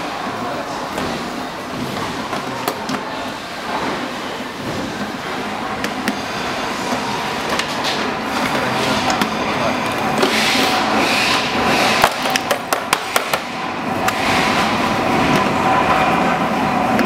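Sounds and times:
steady background noise: 0.0s - 17.0s.

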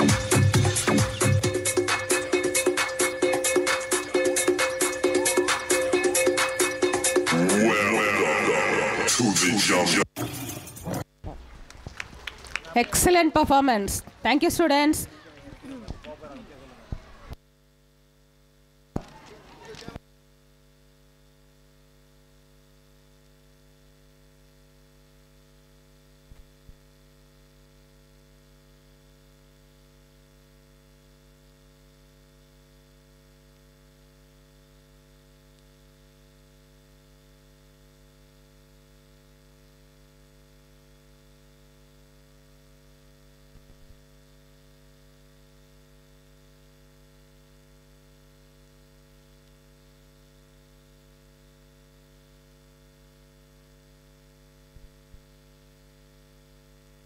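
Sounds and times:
electrical mains hum: 0.0s - 57.0s.

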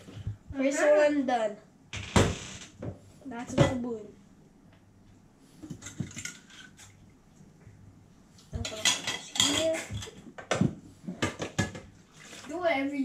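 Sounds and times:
dishes clattering in a metal sink: 5.7s - 6.9s, 8.6s - 12.3s.

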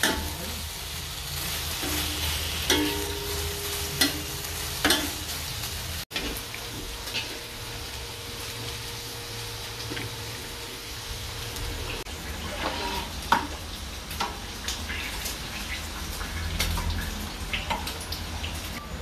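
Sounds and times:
steady kitchen hiss: 0.0s - 19.0s
spatula stirring in a wok: 12.2s - 13.6s.

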